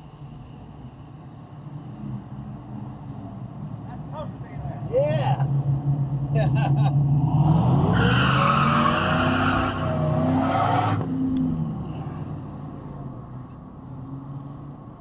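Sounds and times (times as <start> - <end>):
car engine revving: 5.3 - 14.6.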